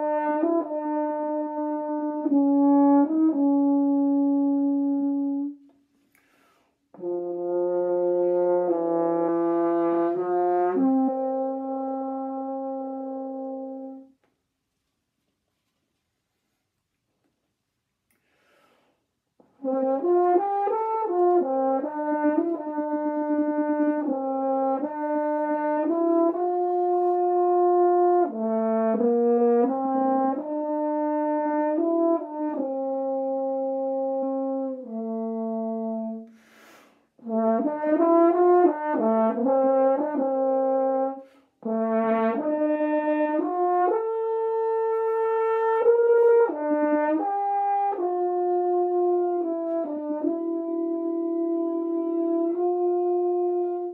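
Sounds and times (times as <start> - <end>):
french horn melody: 0.0 - 14.3, 19.4 - 53.9
breath hiss: 5.9 - 6.9, 18.1 - 19.1, 36.3 - 37.2, 41.2 - 41.6.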